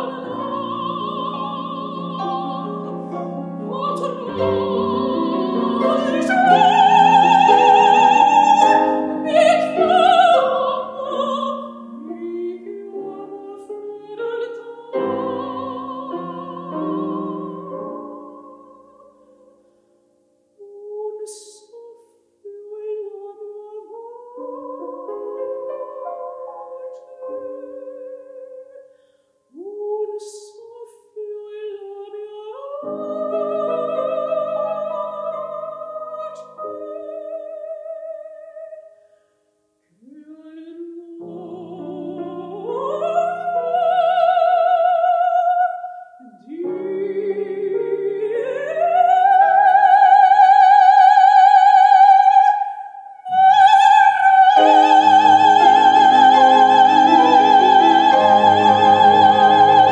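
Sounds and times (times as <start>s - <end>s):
operatic soprano singing: 0.0s - 19.6s, 20.6s - 28.9s, 29.5s - 39.0s, 39.9s - 59.9s
soft musical accompaniment: 0.0s - 28.7s, 53.2s - 59.9s.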